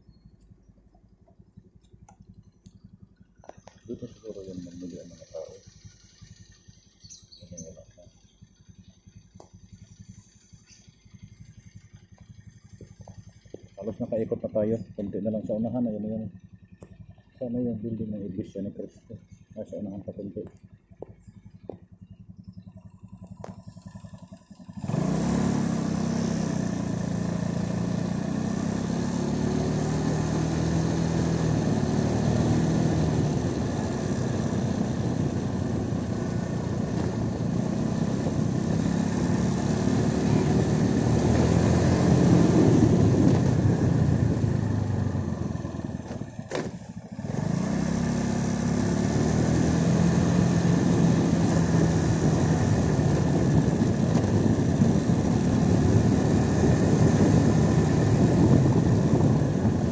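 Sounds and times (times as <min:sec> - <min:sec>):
motorcycle engine running: 0:00.0 - 0:59.9
click: 0:01.2 - 0:02.8
wind on microphone: 0:50.2 - 0:59.9.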